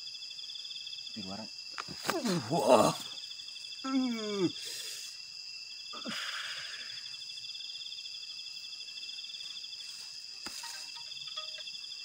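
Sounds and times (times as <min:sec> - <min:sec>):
crickets trilling: 0:00.0 - 0:12.0
groan-like voice: 0:02.2 - 0:03.1, 0:03.8 - 0:04.6.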